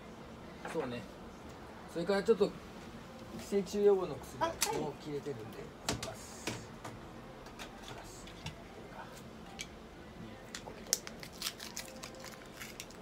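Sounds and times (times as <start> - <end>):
plastic packaging crinkling: 10.9 - 13.0.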